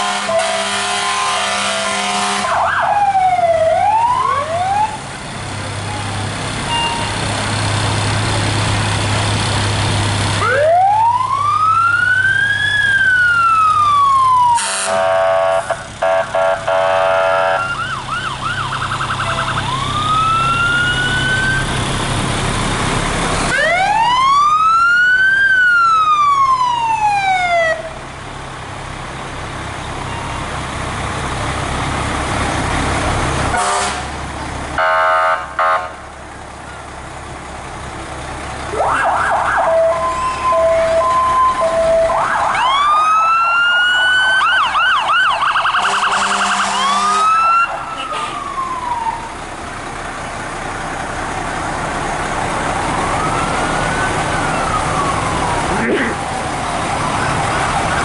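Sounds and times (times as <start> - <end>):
short horn blasts: 0.0 - 2.6, 14.6 - 17.7, 33.5 - 34.1, 34.8 - 36.0, 45.8 - 47.4
fire truck siren wailing: 0.0 - 58.0
truck engine drone: 0.0 - 58.0.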